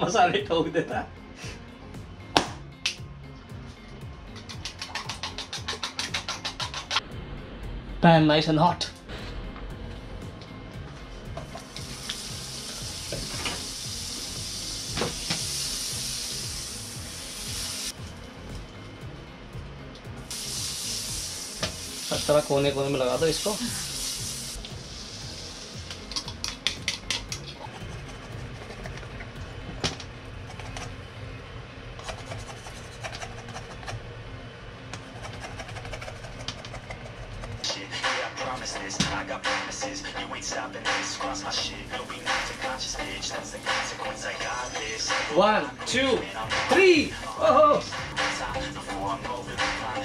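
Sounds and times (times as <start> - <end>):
butter sizzling in a pan: 11.6 - 17.9, 20.3 - 26.5.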